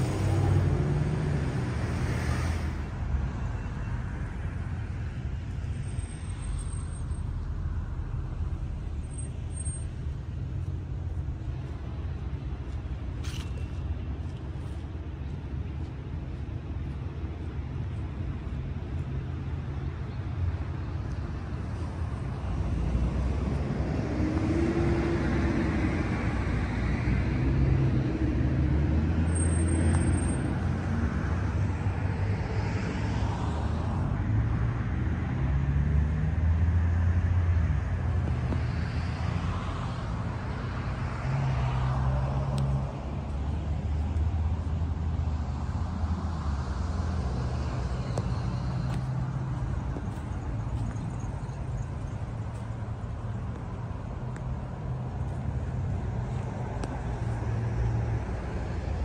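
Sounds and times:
cars passing by: 0:00.0 - 0:59.0
low traffic rumble: 0:00.0 - 0:59.0.

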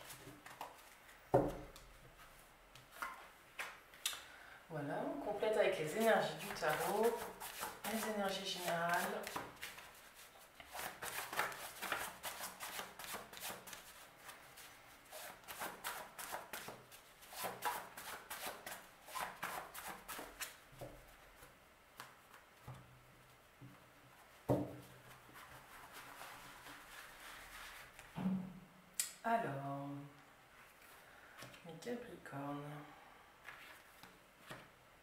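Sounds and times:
cards being shuffled: 0:05.9 - 0:20.6.

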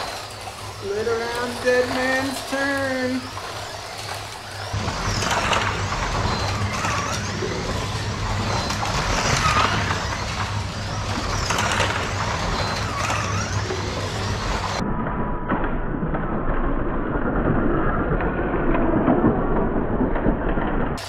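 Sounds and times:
slot car motors whining: 0:00.0 - 0:14.8
steady hum: 0:00.0 - 0:14.8.

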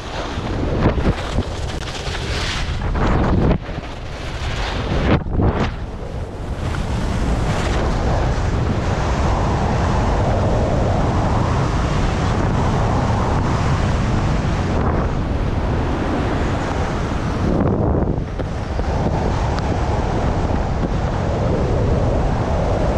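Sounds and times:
skis scraping over snow: 0:00.0 - 0:10.2
wind buffeting microphone: 0:00.0 - 0:22.9.

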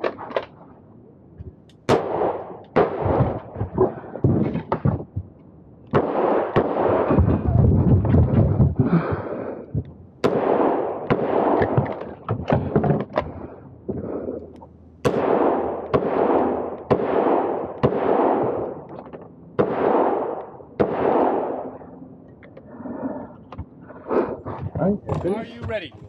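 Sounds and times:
revolver gunshots: 0:01.8 - 0:05.2, 0:05.9 - 0:08.7, 0:10.2 - 0:14.3, 0:15.0 - 0:22.1.

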